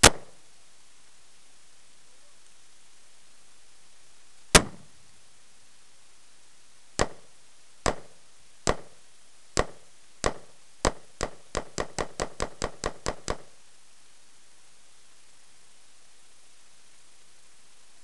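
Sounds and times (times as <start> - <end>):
rifle shots: 0.0 - 0.4, 4.5 - 4.9, 7.0 - 7.2, 7.8 - 8.1, 8.7 - 8.9.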